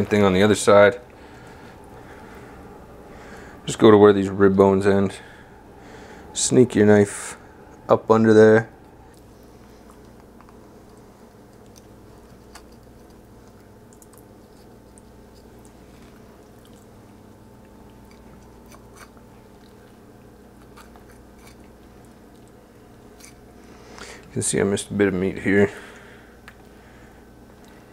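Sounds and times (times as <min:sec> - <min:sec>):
steady low hum: 0:00.0 - 0:27.9
knife crunching through bone: 0:11.6 - 0:13.2, 0:18.0 - 0:19.2, 0:20.5 - 0:21.8.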